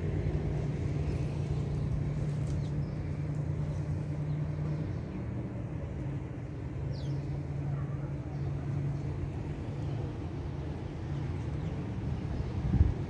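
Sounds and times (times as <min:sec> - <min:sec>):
distant city traffic rumble: 0:00.0 - 0:13.0
steady low hum: 0:00.0 - 0:13.0.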